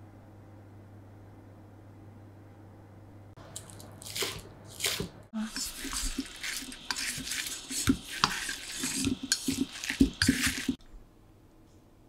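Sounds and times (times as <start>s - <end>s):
soft scraping in bowl: 4.8s - 10.8s.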